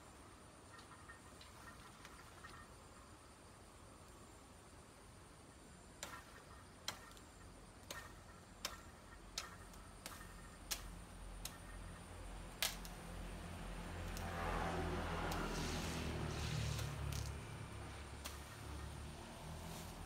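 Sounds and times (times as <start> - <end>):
sharp clicks: 6.0 - 11.8, 12.5 - 13.0.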